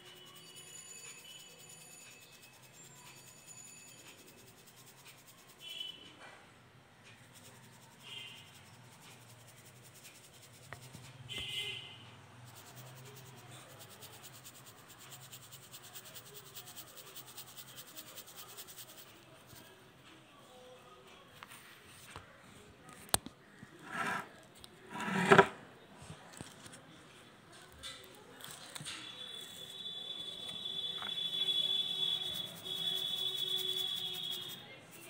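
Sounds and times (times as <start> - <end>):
powder scraping on hard surface: 0.0 - 6.0, 7.2 - 11.8, 12.4 - 19.8, 23.4 - 25.6, 27.6 - 35.0.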